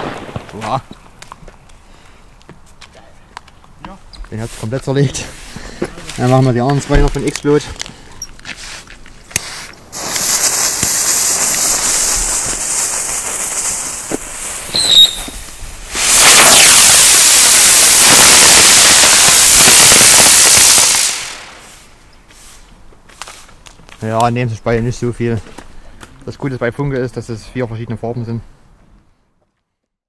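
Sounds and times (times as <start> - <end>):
smoke fireworks hissing: 4.4 - 23.6
high chirp: 14.7 - 15.4.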